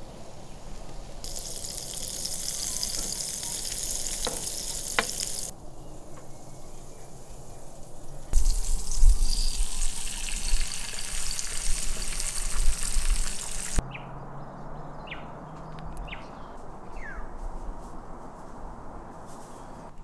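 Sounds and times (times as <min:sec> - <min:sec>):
quiet outdoor ambience: 0:00.0 - 0:20.0
eggs sizzling on a grill plate: 0:01.2 - 0:05.5, 0:08.4 - 0:13.8.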